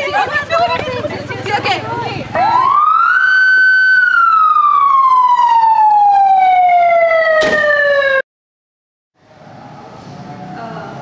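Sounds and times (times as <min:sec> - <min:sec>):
ambulance siren wailing: 0:02.4 - 0:08.3.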